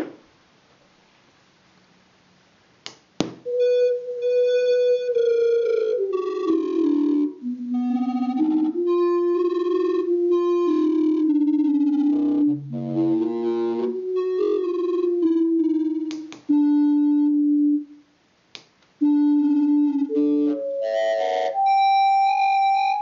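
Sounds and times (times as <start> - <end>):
synthesized theremin tones: 3.5 - 17.9, 19.0 - 23.0.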